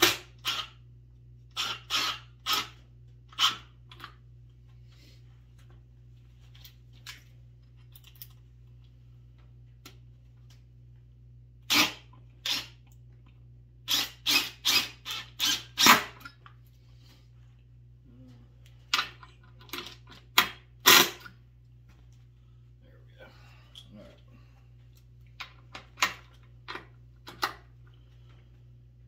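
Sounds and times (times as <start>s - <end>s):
impact driver bursts: 0.0s - 0.8s, 1.5s - 2.8s, 11.6s - 12.8s, 13.9s - 16.3s, 20.4s - 21.3s.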